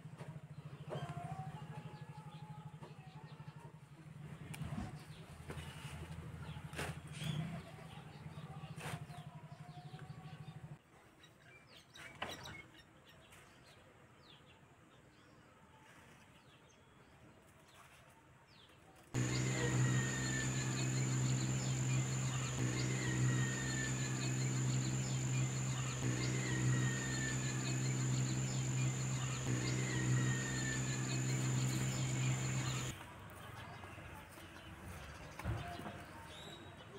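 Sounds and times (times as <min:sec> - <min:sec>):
bird chirping: 0:19.2 - 0:32.9
low hum: 0:19.2 - 0:32.9
steady high whine: 0:19.2 - 0:32.9.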